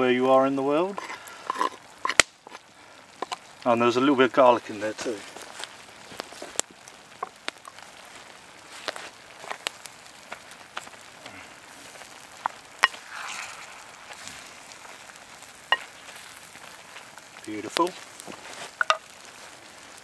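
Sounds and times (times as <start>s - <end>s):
food sizzling in a pot: 0.0s - 20.0s
wooden spoon stirring: 11.8s - 17.1s, 17.8s - 19.1s.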